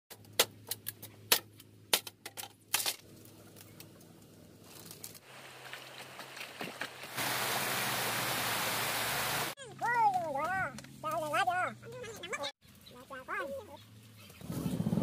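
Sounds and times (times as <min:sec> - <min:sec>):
stream water flowing: 0:05.2 - 0:09.6.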